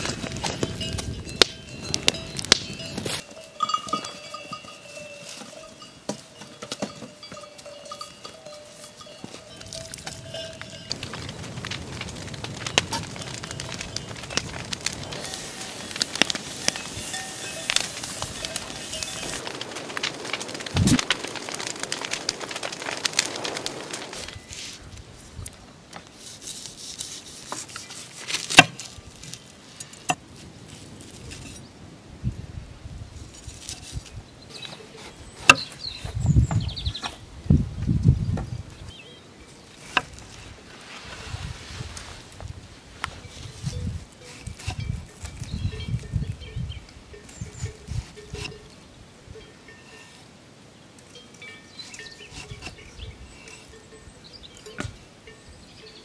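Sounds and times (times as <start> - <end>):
livestock bells clanking: 0.0 - 11.6, 12.6 - 19.4, 43.2 - 50.3, 51.0 - 56.0.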